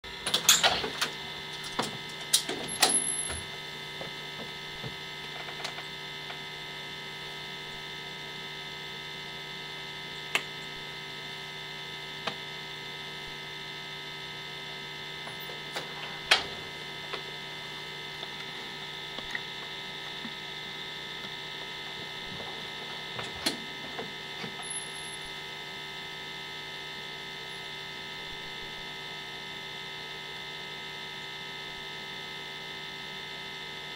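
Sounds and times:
electrical hum: 0.0 - 33.9.

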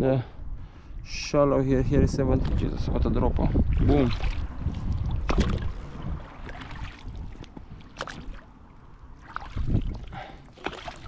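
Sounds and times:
wind rumble on microphone: 0.0 - 11.0
oars splashing in water: 3.6 - 11.0.

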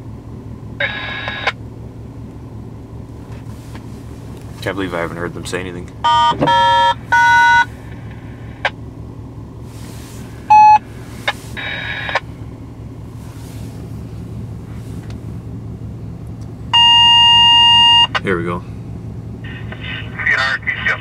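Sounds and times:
car idling heard from inside: 0.0 - 21.0
short electronic beeps: 6.0 - 7.7, 10.5 - 10.8, 16.7 - 18.2.

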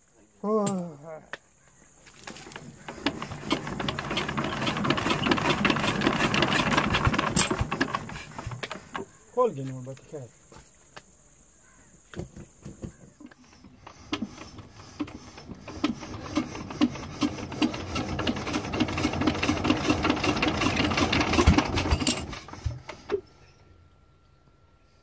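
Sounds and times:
diesel engine clatter being cranked: 2.2 - 9.2, 13.4 - 23.4.

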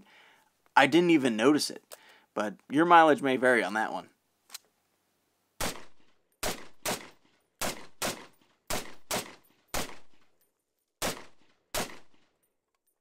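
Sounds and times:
rifle shots with echo: 5.6 - 10.2, 11.0 - 12.2.

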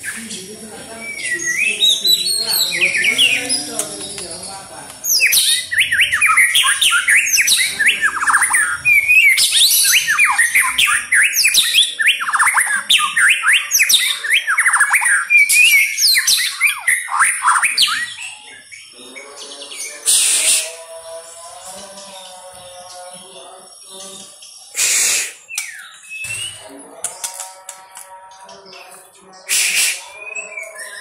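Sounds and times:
bird singing whistled phrases: 5.1 - 18.7, 29.4 - 31.0.

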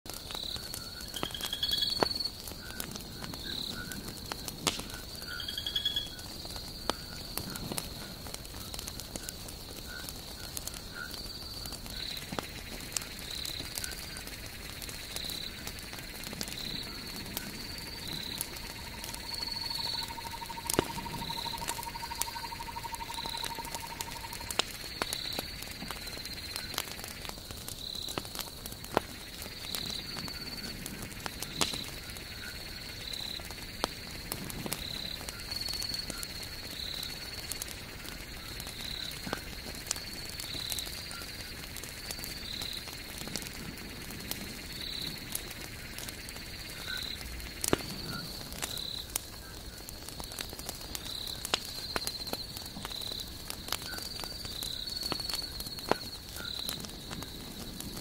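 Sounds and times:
campfire crackling and popping: 0.1 - 58.0
night chorus: 14.6 - 25.7.

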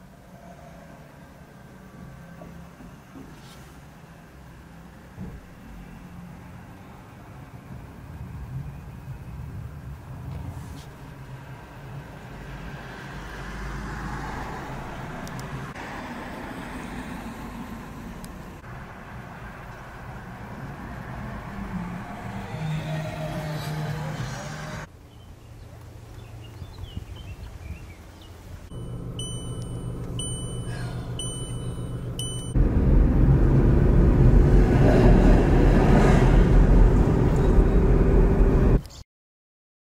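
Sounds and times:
road vehicles passing: 0.0 - 38.9
short high electronic beeps: 28.7 - 32.6
tram motor hum: 28.7 - 38.8
tram wheels rumbling on rails: 29.2 - 38.8.

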